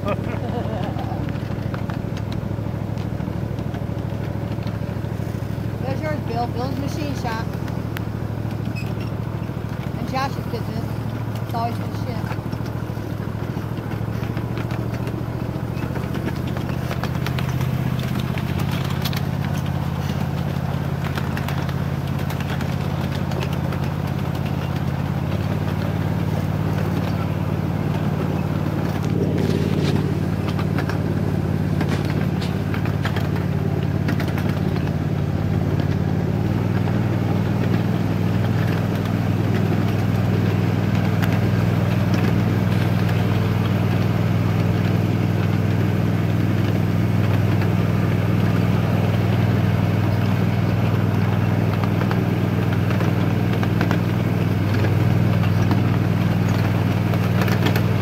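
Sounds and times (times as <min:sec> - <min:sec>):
clicks and rattles: 0:05.9 - 0:47.8.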